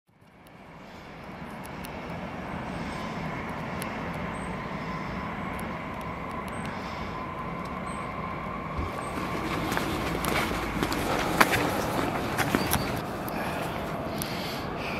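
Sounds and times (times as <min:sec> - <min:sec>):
electric train whine: 0:00.4 - 0:14.9.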